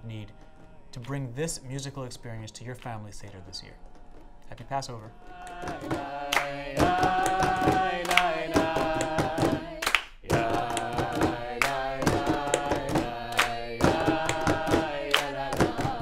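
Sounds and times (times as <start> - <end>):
group of voices singing: 0.1 - 2.4, 3.0 - 16.0
hand claps: 4.0 - 16.0.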